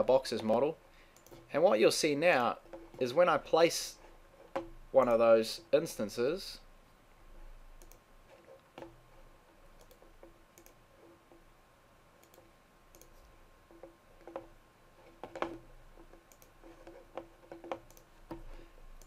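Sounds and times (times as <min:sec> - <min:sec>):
computer mouse clicks: 0:01.2 - 0:01.5, 0:07.8 - 0:08.9, 0:09.8 - 0:10.8, 0:12.2 - 0:14.5, 0:15.2 - 0:19.0.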